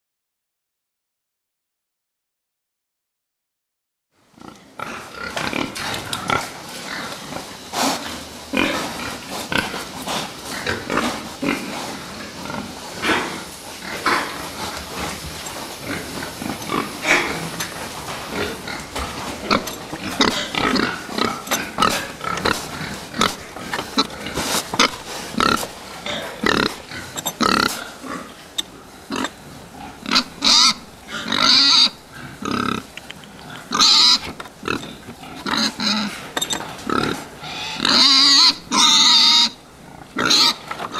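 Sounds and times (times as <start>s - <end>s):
pigs grunting and calling: 4.4s - 40.9s
shrill pig calls: 15.9s - 17.6s, 19.4s - 40.7s.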